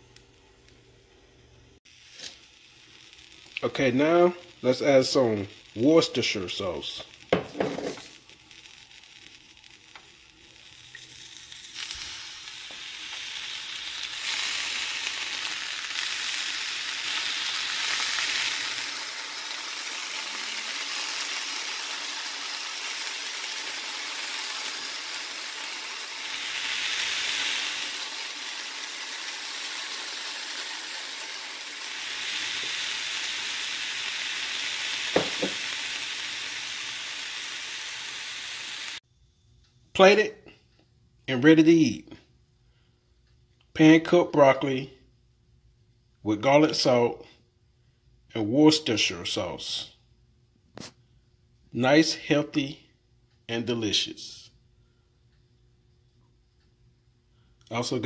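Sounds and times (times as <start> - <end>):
vegetables sizzling in a pan: 1.8 - 39.0.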